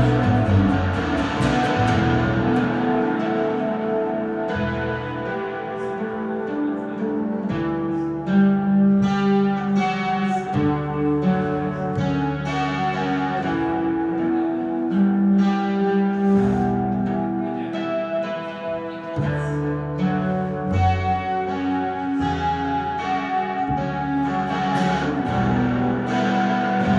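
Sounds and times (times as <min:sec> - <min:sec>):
plucked double bass: 0:00.0 - 0:05.5, 0:19.1 - 0:26.9
acoustic guitar: 0:00.0 - 0:26.9.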